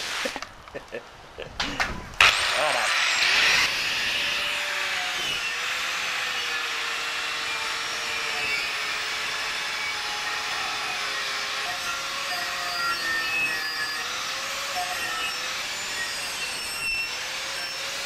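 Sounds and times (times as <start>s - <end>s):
angle grinder motor whine: 2.2s - 18.0s.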